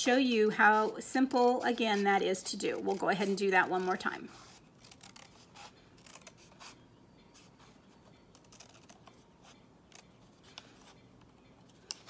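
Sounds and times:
scissors cutting paper: 0:01.2 - 0:06.8, 0:08.3 - 0:10.6.

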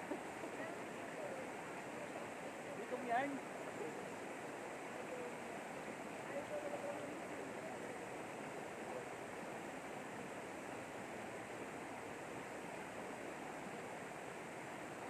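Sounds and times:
faint voices: 0:00.0 - 0:11.4
river flowing over rocks: 0:00.0 - 0:15.0.

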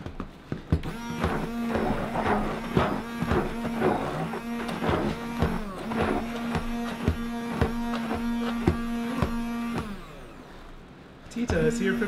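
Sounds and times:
blender churning thick paste: 0:00.7 - 0:10.8
stick blender motor hum: 0:00.8 - 0:10.9.

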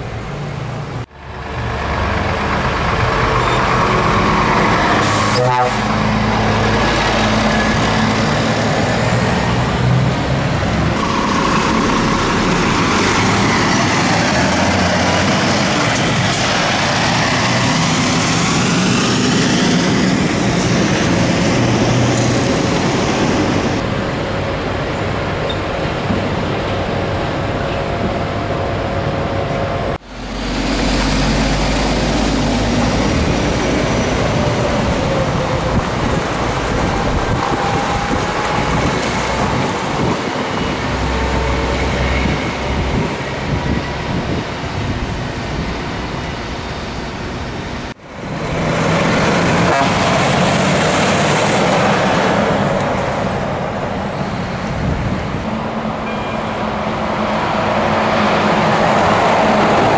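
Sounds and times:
tyre and traffic noise: 0:00.0 - 0:59.9
truck diesel engine running: 0:01.0 - 0:25.4.

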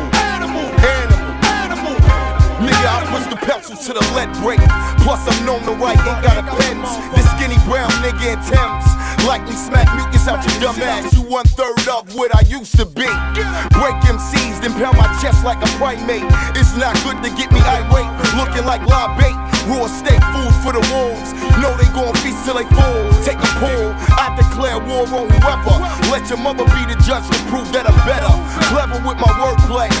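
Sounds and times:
heavy kick drums and bass: 0:00.0 - 0:03.4, 0:04.0 - 0:30.0
rapping over a beat: 0:00.0 - 0:30.0.

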